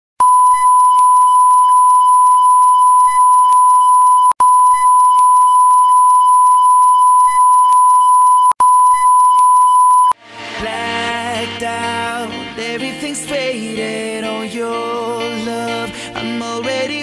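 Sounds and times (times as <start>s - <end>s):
steady test tone beep: 0.2s - 10.2s.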